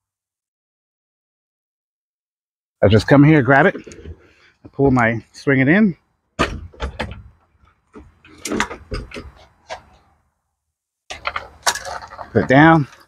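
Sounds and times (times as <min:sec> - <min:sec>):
clunks: 0:06.4 - 0:10.0, 0:11.1 - 0:13.0
bike frame knocking and scraping: 0:06.4 - 0:10.1, 0:11.1 - 0:13.0.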